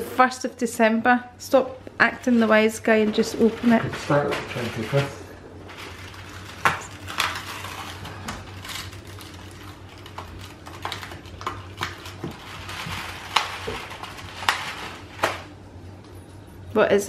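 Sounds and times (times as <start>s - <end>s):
cardboard clicks and crackles: 4.3s - 15.5s.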